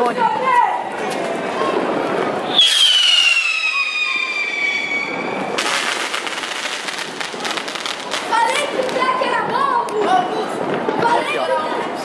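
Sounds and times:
firework crackle: 1.2s - 12.0s
firework whistle falling pitch: 2.4s - 6.2s.

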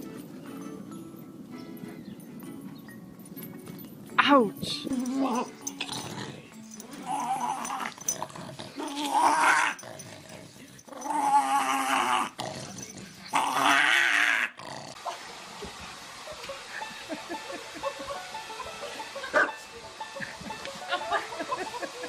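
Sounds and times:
small dog growling playfully: 4.9s - 15.1s.

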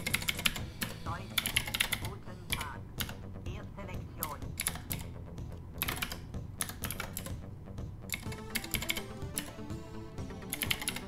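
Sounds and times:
typing on computer keyboard: 0.0s - 3.2s, 4.2s - 5.1s, 5.8s - 7.4s, 8.1s - 9.6s, 10.5s - 11.0s
electronic demo music: 0.0s - 11.0s.

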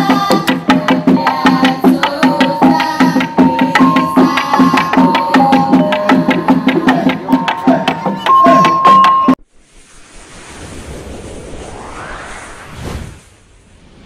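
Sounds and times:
held higher tone: 2.2s - 9.4s.

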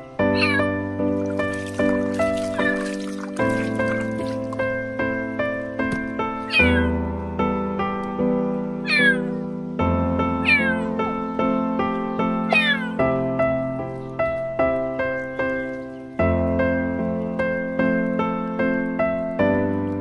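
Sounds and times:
background music: 0.0s - 20.0s
kitten meowing: 0.2s - 0.8s, 6.4s - 7.0s, 8.8s - 9.4s, 10.4s - 11.0s, 12.4s - 13.0s.

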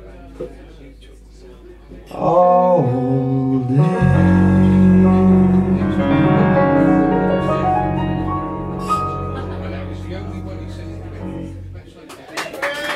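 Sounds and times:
bass guitar: 2.1s - 12.0s
electric piano chord: 3.8s - 11.9s.

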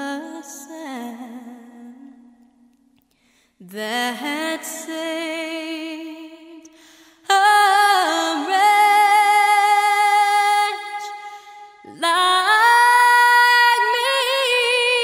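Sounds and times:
solo voice singing with vibrato: 3.6s - 15.0s.

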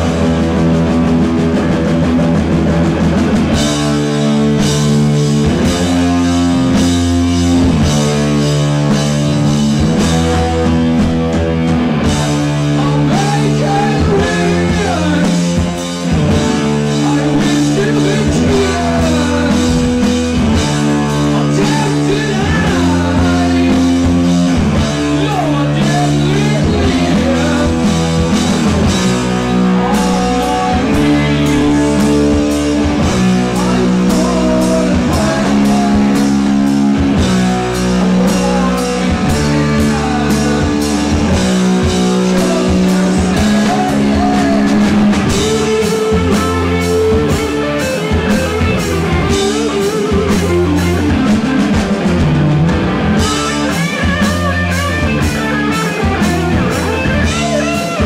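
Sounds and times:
heavy rock band playing: 0.0s - 58.0s
man singing: 9.9s - 11.3s, 12.4s - 51.8s.

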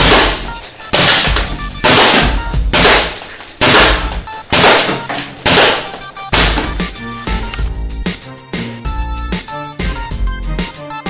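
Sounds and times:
air gun firing sharp blasts: 0.0s - 7.0s
background music: 0.0s - 11.0s.

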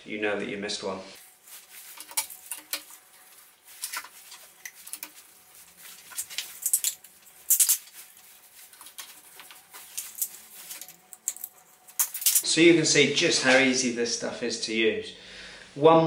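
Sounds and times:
plastic fittings clicking and rattling: 6.0s - 8.0s.

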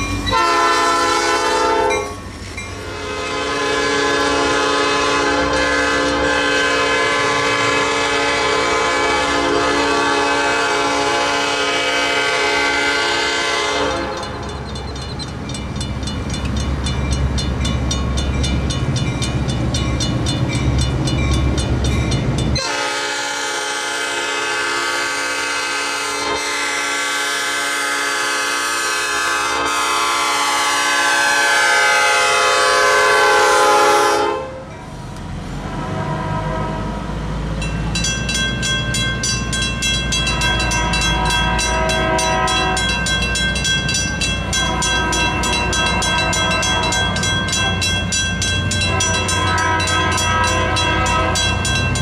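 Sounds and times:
railroad crossing bell ringing: 0.0s - 25.2s, 37.5s - 52.0s
locomotive air horn: 0.3s - 2.2s, 2.8s - 14.7s, 22.6s - 34.7s, 35.6s - 37.2s, 40.2s - 43.2s, 44.4s - 52.0s.

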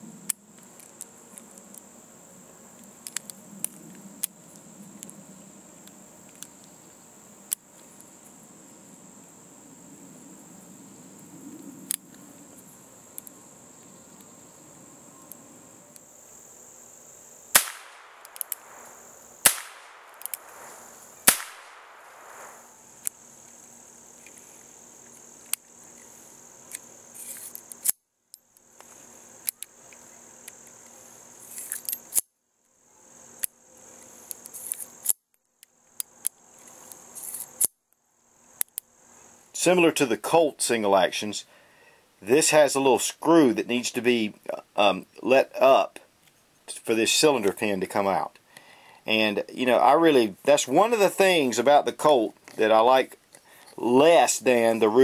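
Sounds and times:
crickets chirping: 0.0s - 55.0s
revolver shots with echo: 17.6s - 22.6s
revolver metallic clicks: 17.6s - 23.2s.

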